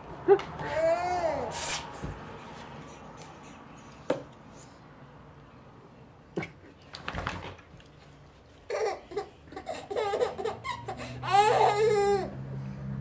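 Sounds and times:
baby laughing: 8.7s - 12.4s.

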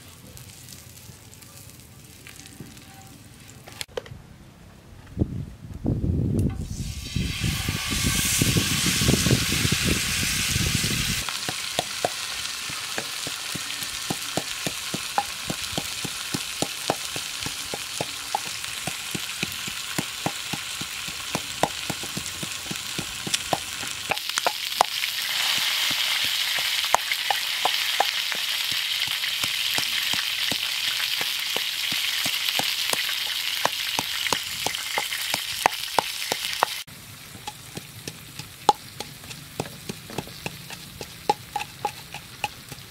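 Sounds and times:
steady hiss: 6.5s - 42.9s
pestle pounding in wooden mortar: 11.4s - 36.8s, 37.4s - 42.9s.

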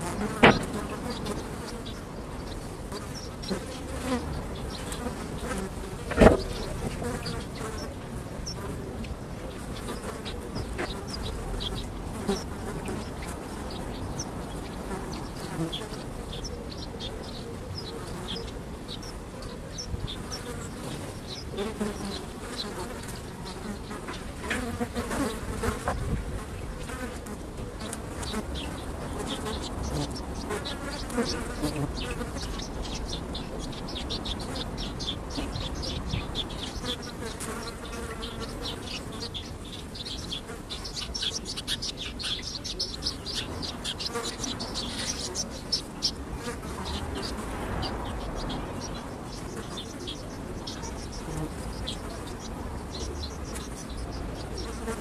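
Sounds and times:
flies buzzing: 0.0s - 16.4s, 20.2s - 55.0s.

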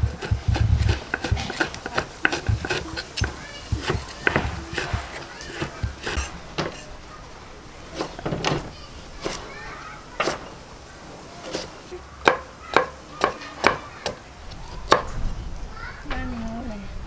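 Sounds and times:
knife chopping on wooden board: 0.0s - 6.8s, 10.2s - 10.4s
faint voices: 0.0s - 17.0s.

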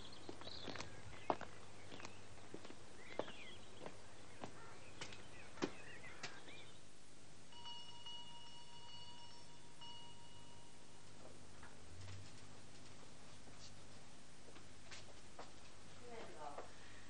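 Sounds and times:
birds chirping: 0.0s - 11.1s
boot footsteps on stone steps: 0.2s - 6.6s
faint steady high tone: 7.5s - 11.6s.

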